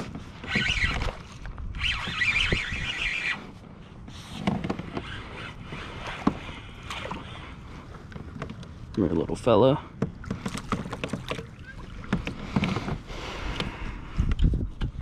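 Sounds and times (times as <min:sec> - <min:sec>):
fishing reel buzzing: 0:00.4 - 0:03.6.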